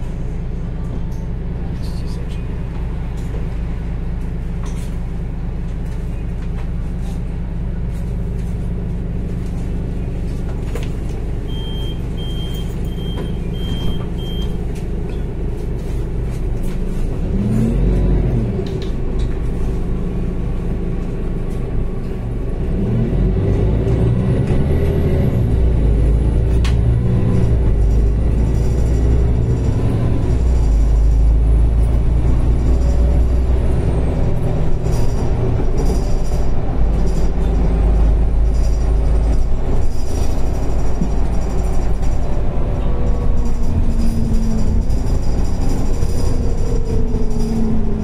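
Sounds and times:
bus engine: 0:00.0 - 0:48.0
short beeps: 0:11.5 - 0:14.6.

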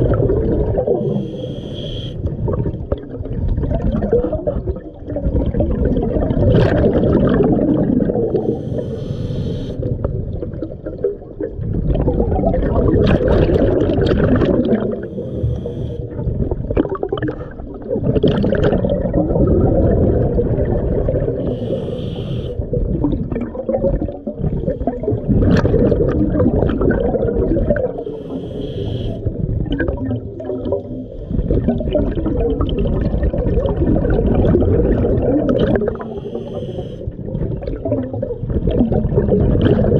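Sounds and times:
exhaled bubbles gushing: 0:00.0 - 0:39.9
regulator inhale hiss: 0:01.0 - 0:02.3, 0:08.3 - 0:09.9, 0:15.0 - 0:16.1, 0:21.4 - 0:22.6, 0:28.0 - 0:29.3, 0:31.0 - 0:31.6, 0:35.9 - 0:37.2.

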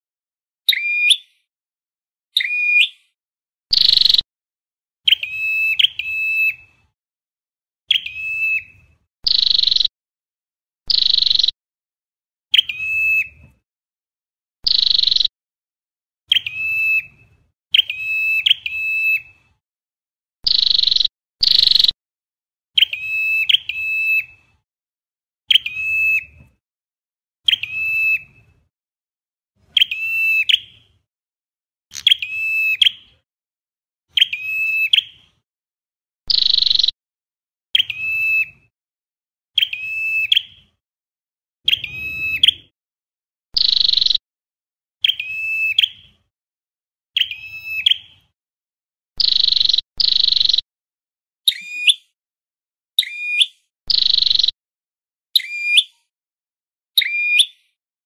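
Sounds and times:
bird singing clear notes: 0:00.7 - 0:01.5, 0:02.4 - 0:04.3, 0:05.1 - 0:06.7, 0:07.9 - 0:09.9, 0:10.9 - 0:11.6, 0:12.5 - 0:13.4, 0:14.6 - 0:15.3, 0:16.3 - 0:19.3, 0:20.5 - 0:22.0, 0:36.3 - 0:37.0, 0:41.7 - 0:42.7, 0:43.6 - 0:44.2.

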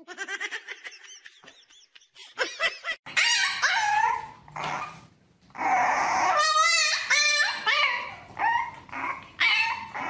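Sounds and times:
puppies growling: 0:03.1 - 0:10.0
puppies howling: 0:05.6 - 0:10.0.

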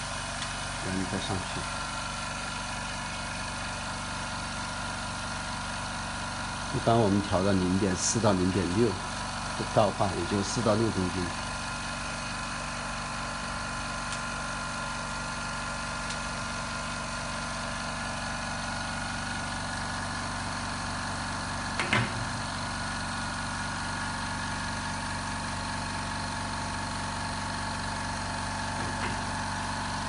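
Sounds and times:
small air compressor running: 0:00.0 - 0:30.0
brief knock: 0:21.8 - 0:22.3.

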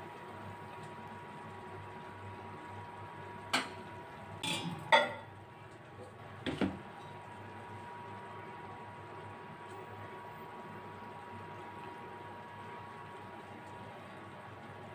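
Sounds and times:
low kitchen hum: 0:00.0 - 0:14.9.

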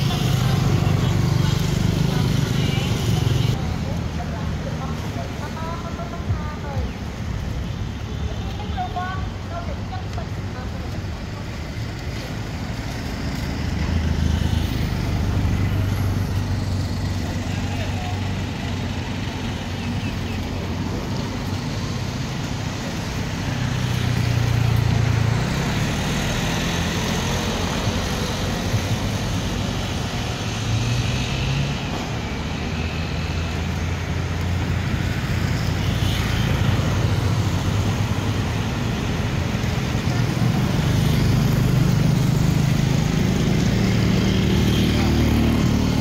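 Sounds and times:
passing vehicles engine drone: 0:10.5 - 0:46.0.

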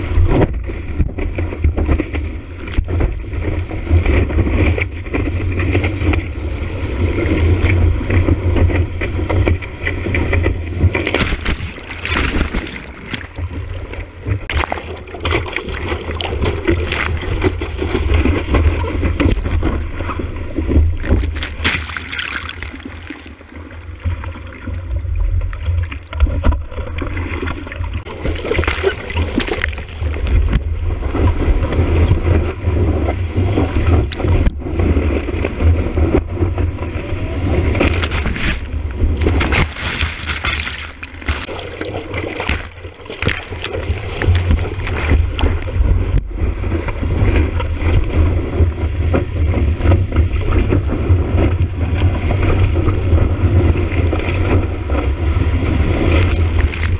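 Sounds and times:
low rumble of water: 0:00.0 - 0:56.9
whitewater rushing and splashing: 0:09.8 - 0:25.0, 0:27.2 - 0:48.4, 0:52.3 - 0:56.9
sharp water splashes: 0:10.7 - 0:24.5, 0:25.6 - 0:31.0, 0:37.5 - 0:46.2, 0:55.2 - 0:56.9.

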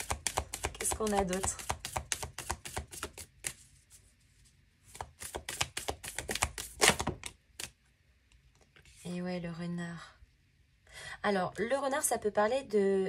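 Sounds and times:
cards being shuffled: 0:00.0 - 0:04.0, 0:04.9 - 0:07.8
loud card slap: 0:05.5 - 0:07.7.

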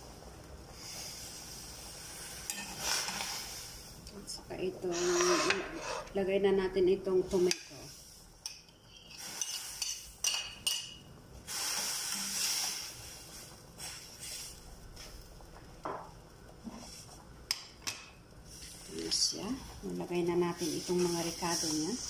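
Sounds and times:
food hissing in a pan: 0:00.0 - 0:04.0, 0:04.8 - 0:06.1, 0:07.7 - 0:08.4, 0:09.1 - 0:10.2, 0:11.4 - 0:15.4, 0:16.6 - 0:17.2, 0:18.4 - 0:22.0
spoon stirring in a pan: 0:02.2 - 0:03.6, 0:08.4 - 0:11.0
metal spoon scraping a plate: 0:04.9 - 0:06.1.

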